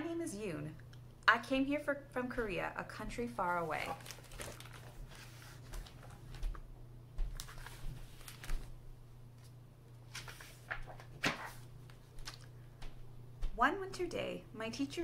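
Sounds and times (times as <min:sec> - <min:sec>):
low steady hum: 0:00.0 - 0:15.0
soft paper rustle: 0:03.5 - 0:06.6, 0:07.2 - 0:08.8, 0:09.4 - 0:12.5.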